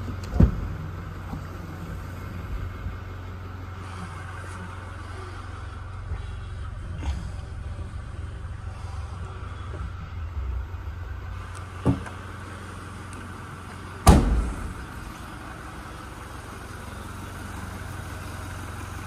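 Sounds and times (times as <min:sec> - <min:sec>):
steady low hum: 0:00.0 - 0:19.0
tailgate slamming shut: 0:00.2 - 0:00.8, 0:11.8 - 0:12.2, 0:14.0 - 0:15.0.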